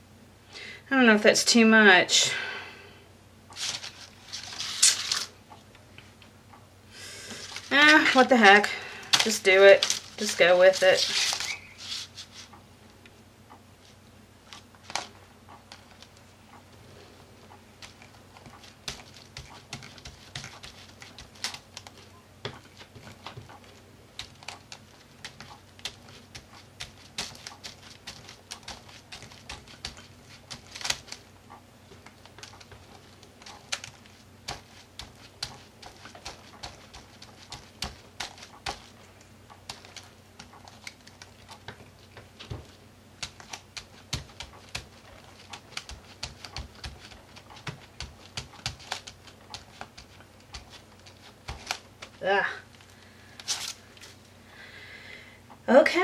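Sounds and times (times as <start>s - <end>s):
tapping on paper: 17.8s - 31.2s, 31.9s - 38.9s, 39.6s - 52.1s.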